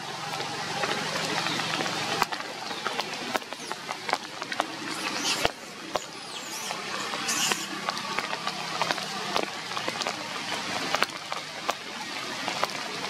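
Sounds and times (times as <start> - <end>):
brief high-pitched squeaks: 6.4 - 7.7.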